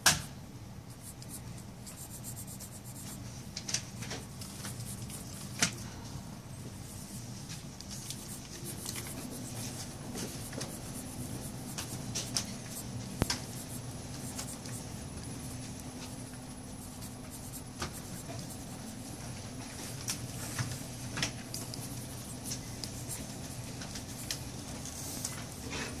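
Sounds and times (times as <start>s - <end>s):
low steady hum: 0.0s - 26.0s
pencil scratching on card: 0.9s - 3.3s, 4.0s - 5.6s, 6.8s - 20.9s, 21.5s - 25.6s.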